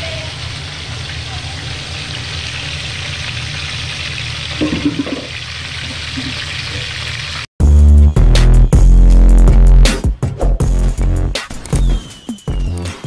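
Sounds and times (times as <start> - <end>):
fish sizzling in hot oil: 0.0 - 7.5
loud electronic music: 7.6 - 13.0.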